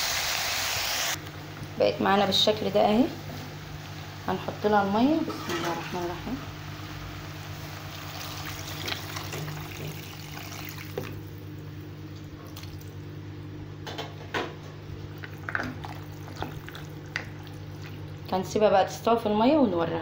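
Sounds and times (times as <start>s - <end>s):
steady low hum: 1.1s - 20.0s
water pouring into a pan: 7.9s - 11.2s.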